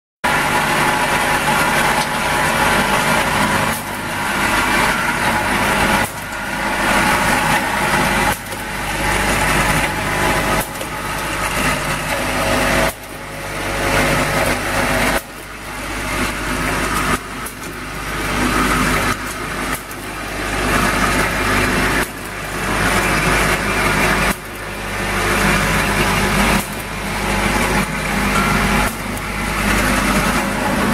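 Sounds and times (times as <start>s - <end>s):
bottling machine running: 0.2s - 30.9s.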